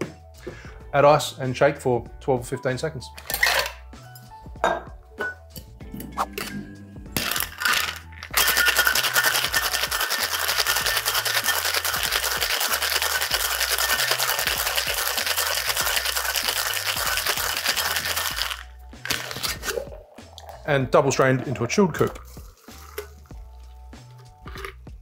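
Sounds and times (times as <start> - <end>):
background music bass line: 0.0 - 25.0
shaker tins knocking: 7.2 - 19.8
ice rattling in cocktail shaker: 7.2 - 23.9.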